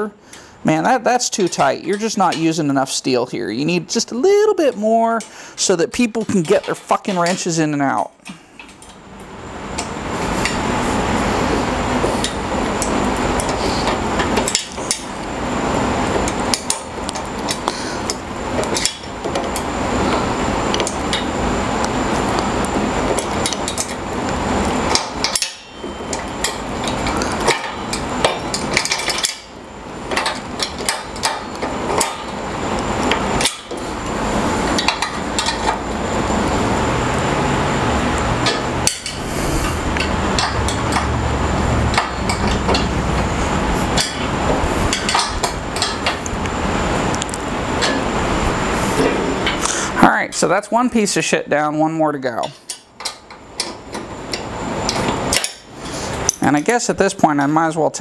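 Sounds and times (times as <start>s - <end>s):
wrench clicking and clanking on bolts: 6.2s - 7.5s, 24.9s - 29.5s, 40.0s - 41.1s, 41.9s - 42.9s, 44.9s - 46.2s, 52.4s - 55.7s.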